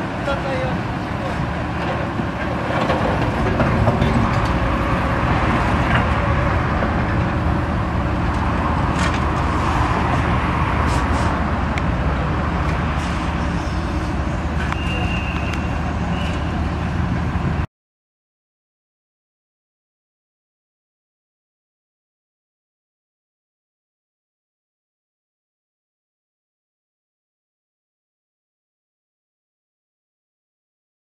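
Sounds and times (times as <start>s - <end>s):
excavator engine running: 0.0s - 17.6s.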